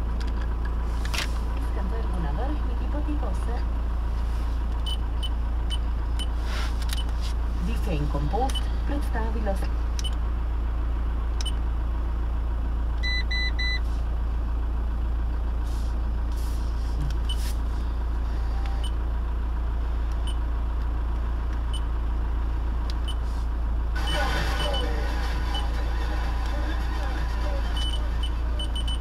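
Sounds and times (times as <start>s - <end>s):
diesel engine idling: 0.0s - 29.0s
quick high beeps: 24.0s - 25.7s, 27.8s - 29.0s.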